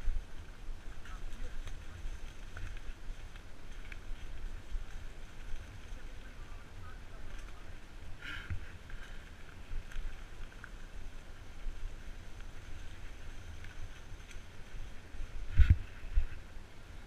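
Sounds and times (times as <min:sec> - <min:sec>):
wind on microphone: 0:11.0 - 0:16.6.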